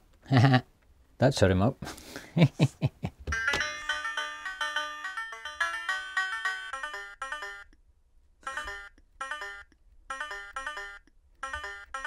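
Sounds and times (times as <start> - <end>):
electronic banjo tune: 3.3 - 7.7, 8.4 - 12.0.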